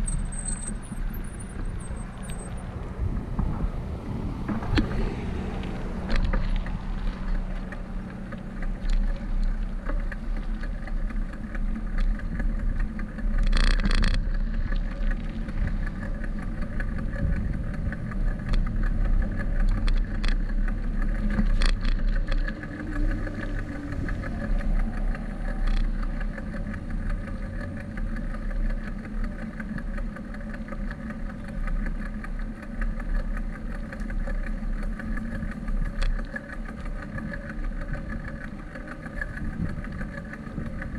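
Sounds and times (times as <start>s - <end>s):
road noise and traffic rumble: 0.0s - 40.9s
wind buffeting microphone: 1.0s - 13.4s, 14.2s - 27.3s, 35.2s - 40.9s.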